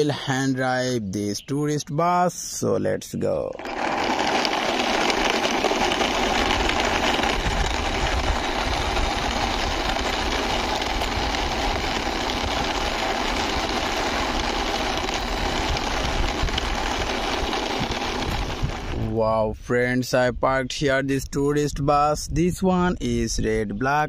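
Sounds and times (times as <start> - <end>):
toy bus rolling on concrete: 3.3 - 19.2.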